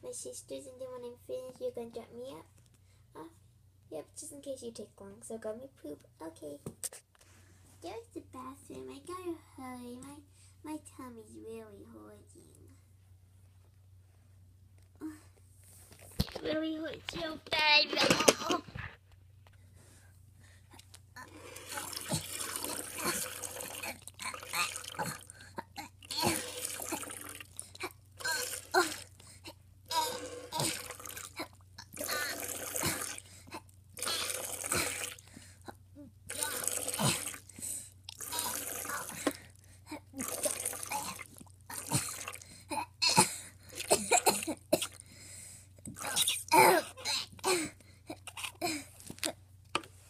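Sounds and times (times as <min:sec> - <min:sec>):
child making mouth noises and gasps: 0:20.6 - 0:43.9.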